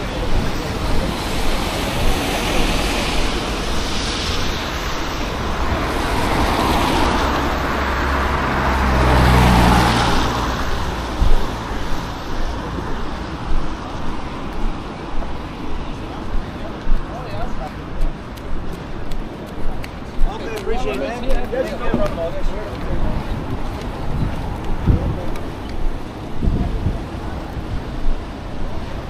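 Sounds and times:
tyres hissing on wet road: 0.0s - 16.2s
heavy vehicle engine hum: 0.0s - 20.8s.

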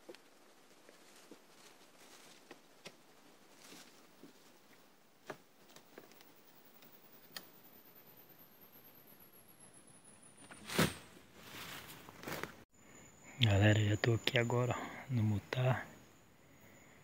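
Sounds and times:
faint sharp ticks and clicks: 4.7s - 7.6s.

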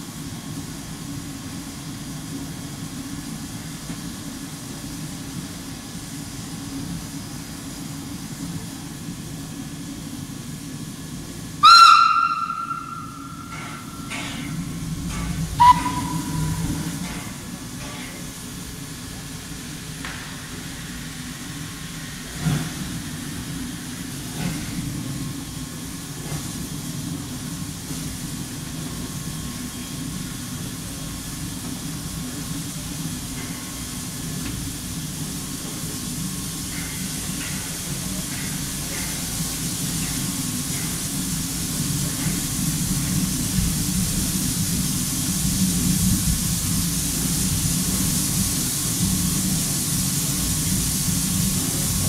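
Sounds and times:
steam locomotive exhaust beats: 0.0s - 52.0s.

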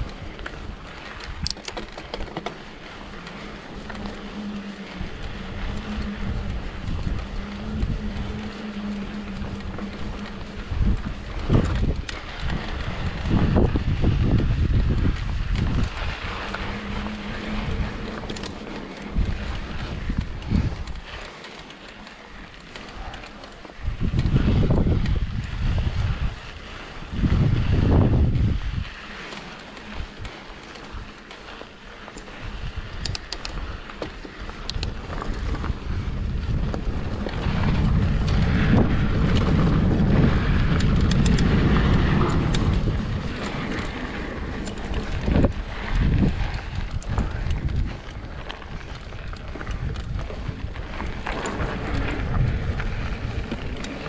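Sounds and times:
bike clicks and rattles: 0.0s - 54.0s
bike freewheel buzz: 0.0s - 54.0s
tyres on dirt trail: 0.0s - 54.0s
wind on microphone: 0.0s - 54.0s.

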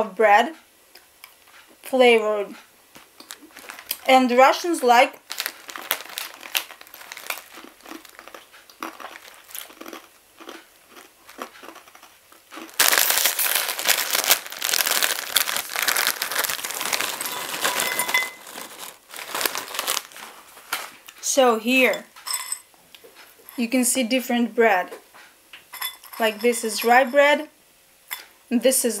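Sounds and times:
crunchy bread sticks chewed: 2.6s - 4.1s, 5.1s - 21.2s
snack packet crackles: 3.1s - 21.0s
plastic bag crinkling: 3.2s - 21.1s.

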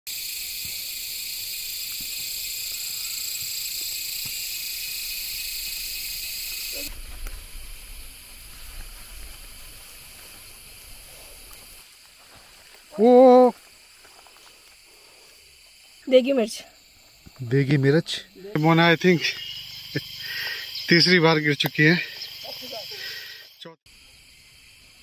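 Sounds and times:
cicadas buzzing: 0.1s - 25.0s.

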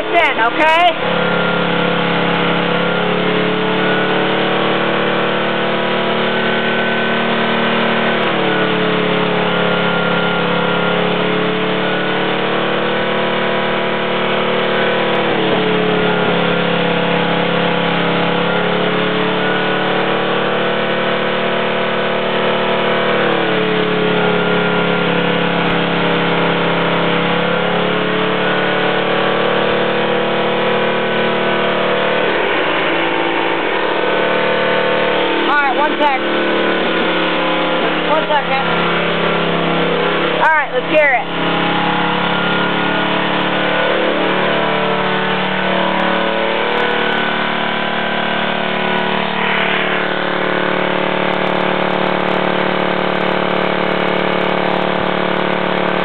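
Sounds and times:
single-cylinder engine running: 0.0s - 56.0s.

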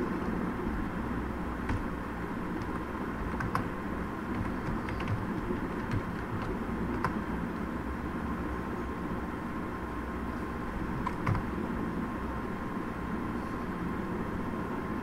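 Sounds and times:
low hum: 0.0s - 15.0s
computer keyboard keystrokes: 1.7s - 1.9s, 2.6s - 3.7s, 4.3s - 7.2s, 11.0s - 11.5s.

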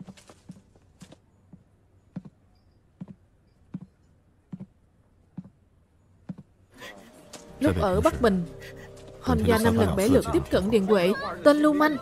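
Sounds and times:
slow footsteps: 0.0s - 6.6s.

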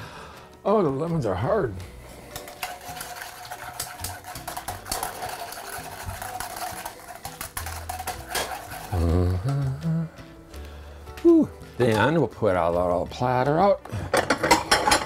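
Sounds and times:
metal utensil stirring in saucepan: 2.0s - 9.1s.

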